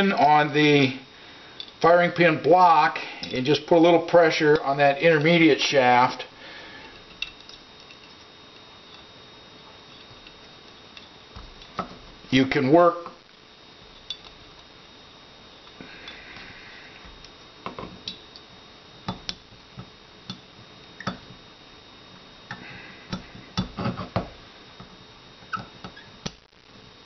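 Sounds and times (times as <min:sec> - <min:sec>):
small metal parts clicking: 0:07.0 - 0:08.3.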